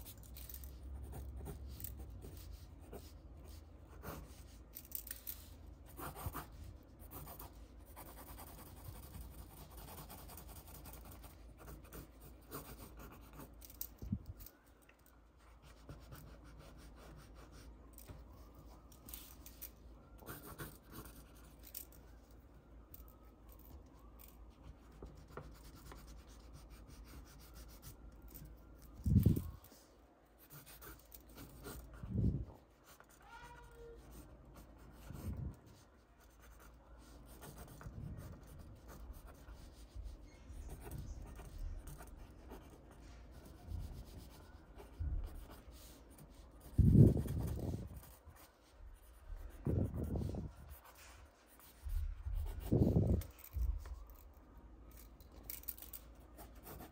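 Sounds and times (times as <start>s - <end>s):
pencil scratching on paper: 1.0s - 4.6s, 5.4s - 13.6s, 15.6s - 17.8s, 20.2s - 21.6s, 30.4s - 53.3s, 56.4s - 56.9s.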